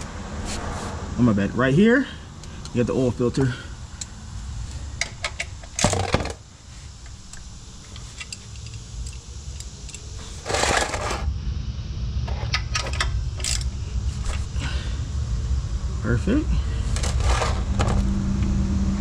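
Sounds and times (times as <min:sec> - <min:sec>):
steady low hum: 0:00.0 - 0:19.0
ratchet socket clicking: 0:07.0 - 0:10.2
metal tool clatter: 0:10.2 - 0:11.2.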